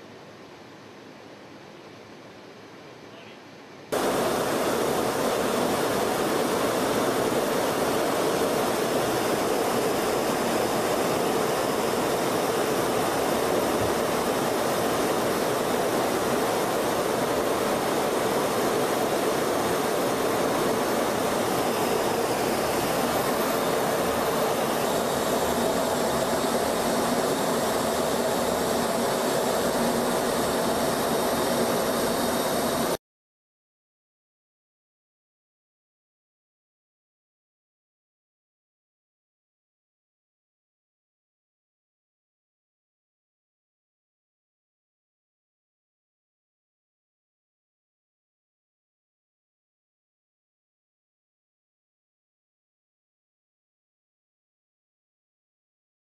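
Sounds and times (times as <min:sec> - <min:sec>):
jet aircraft rushing noise: 0:04.0 - 0:33.0.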